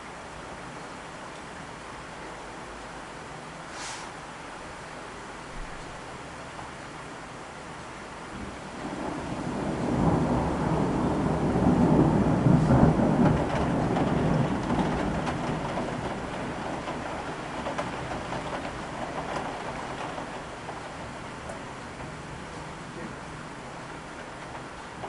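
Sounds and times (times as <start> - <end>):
rain falling: 0.0 - 25.0
thunder rumbling: 8.3 - 25.0.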